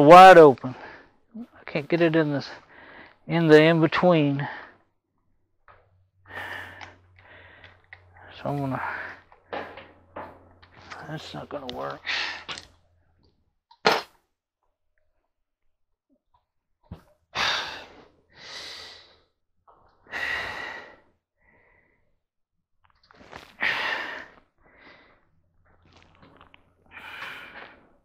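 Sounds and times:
man breathing heavily: 2.5 - 3.3, 6.2 - 11.0, 12.0 - 12.7, 17.4 - 19.3, 20.0 - 22.1, 23.4 - 25.4, 26.8 - 28.0.

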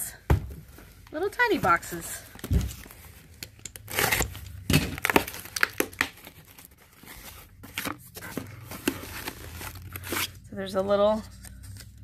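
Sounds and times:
packaging rustling and crinkling: 0.5 - 10.5
cardboard tearing: 3.8 - 10.4.

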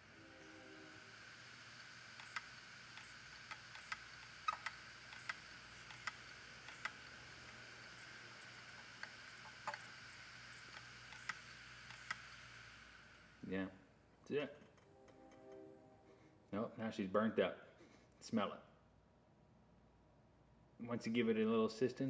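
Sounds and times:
hard drive spinning hum: 0.0 - 14.0.

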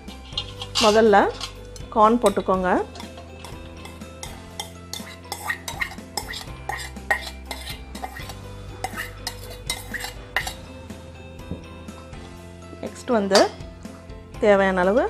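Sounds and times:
spoon scraping steel bowls: 0.0 - 10.8.

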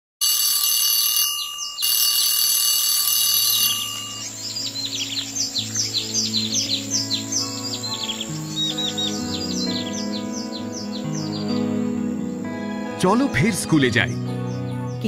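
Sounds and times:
alarm clock ringing: 0.2 - 4.8
birds chirping: 0.9 - 15.0
soft sustained music chords: 3.9 - 15.0.

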